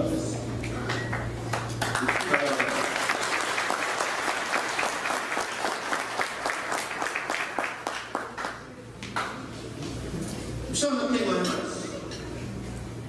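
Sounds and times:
audience applauding: 1.1s - 8.7s.

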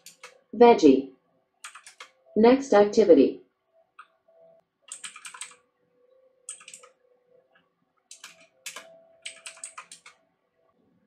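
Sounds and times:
computer keyboard typing: 0.0s - 0.5s, 1.6s - 2.2s, 4.9s - 5.6s, 6.5s - 7.0s, 8.1s - 10.2s.

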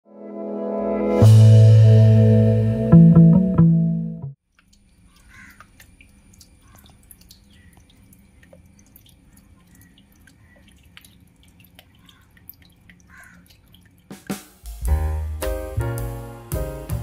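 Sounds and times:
water drips and trickles: 4.4s - 14.8s.

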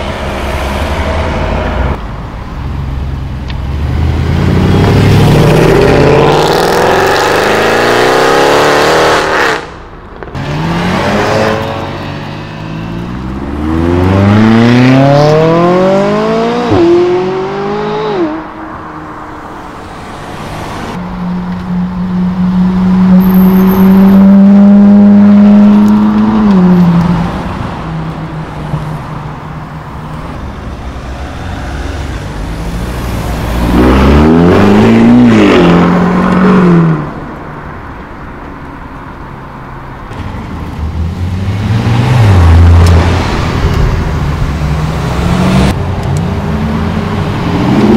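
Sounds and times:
car engine revving: 3.7s - 18.6s, 30.7s - 37.3s
supercars accelerating: 10.4s - 18.6s, 30.4s - 37.2s.

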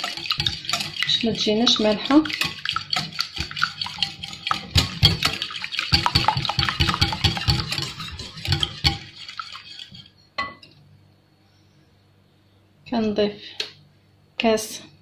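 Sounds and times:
whisk beating eggs in glass bowl: 0.0s - 10.1s
whisk tapping bowl: 0.0s - 10.1s.

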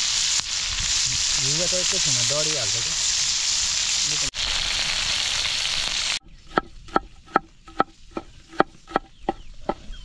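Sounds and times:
food sizzling in a pan: 0.0s - 6.2s.

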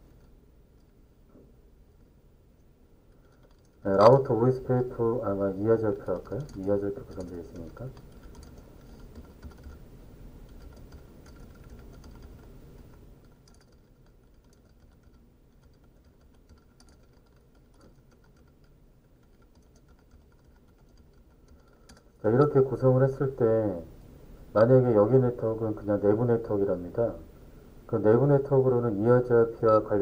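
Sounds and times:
faint keyboard typing: 0.0s - 1.0s, 2.6s - 23.4s.

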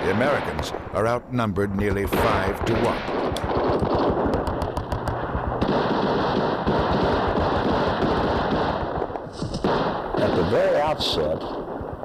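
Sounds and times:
automatic gunfire: 2.1s - 10.9s.

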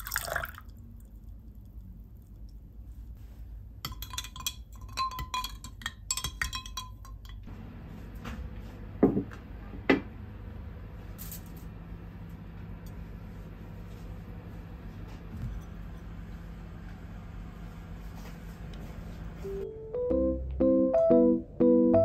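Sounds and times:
ice and spoon clinking in glass: 3.8s - 7.4s.

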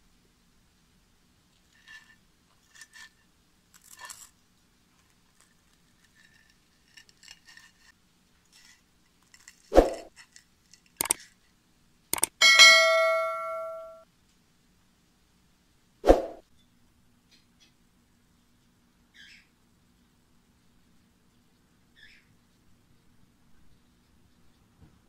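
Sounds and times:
fork scraping ceramic plate: 6.0s - 8.0s
mouse clicks: 11.0s - 11.2s, 12.2s - 12.4s
ringing bell chime: 12.4s - 14.0s.

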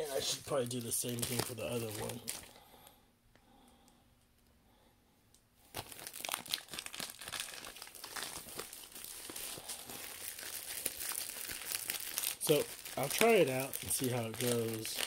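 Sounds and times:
plastic wrapping crinkling: 0.0s - 2.6s, 5.7s - 15.0s.

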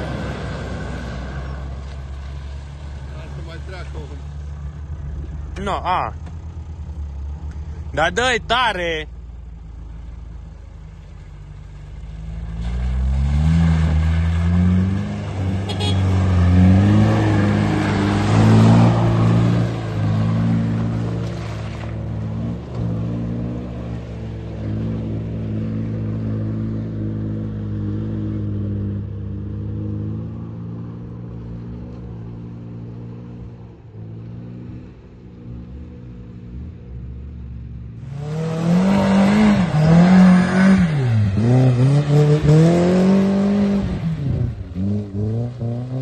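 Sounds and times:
off-roader engine running: 0.0s - 46.0s
wheels throwing mud: 12.0s - 22.8s
engine revving high: 12.4s - 21.6s, 38.0s - 46.0s.

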